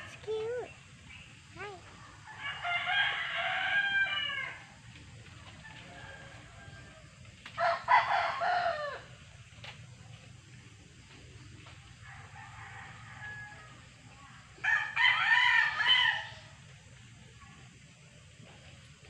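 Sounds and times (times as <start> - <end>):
rooster crowing: 2.3 - 4.7, 5.6 - 9.1, 12.0 - 13.8, 14.6 - 16.5.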